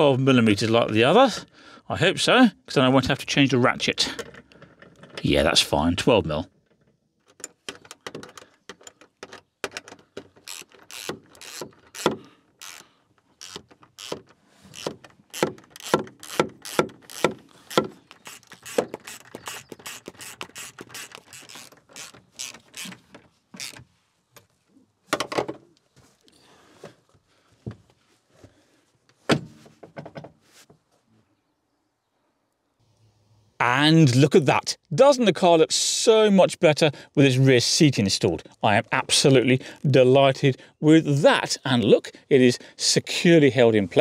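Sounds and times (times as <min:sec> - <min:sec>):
ratchet wrench clicking: 0:10.4 - 0:23.0.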